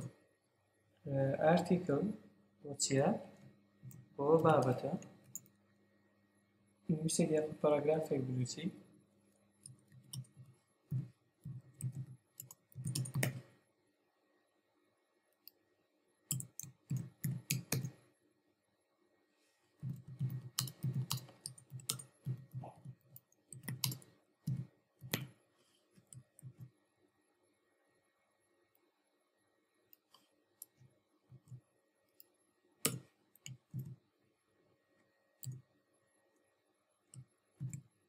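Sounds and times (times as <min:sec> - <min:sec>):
typing on computer keyboard: 0:09.6 - 0:13.5, 0:16.3 - 0:18.0, 0:19.8 - 0:25.3.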